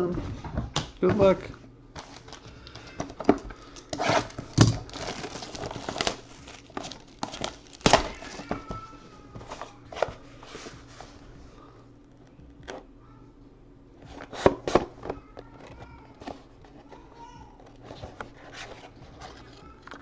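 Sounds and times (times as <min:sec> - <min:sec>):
plastic shrink wrap tearing and crinkling: 0:02.0 - 0:08.9.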